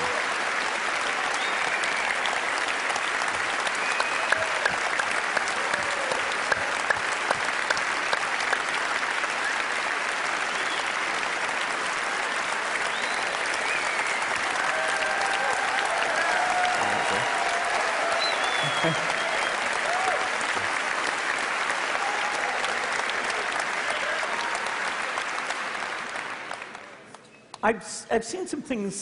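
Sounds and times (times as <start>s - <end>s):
people cheering: 0.0s - 27.0s
audience applauding: 0.0s - 27.6s.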